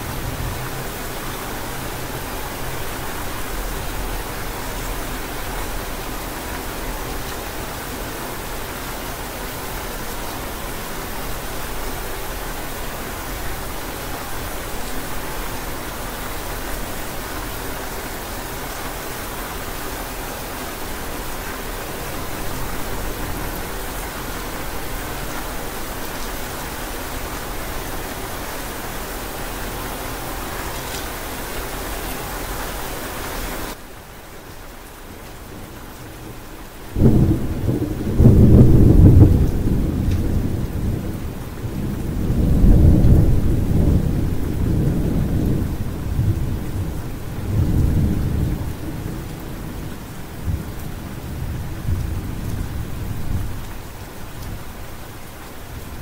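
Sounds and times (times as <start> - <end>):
rain hiss: 0.0 - 56.0
rolling thunder: 37.0 - 53.6.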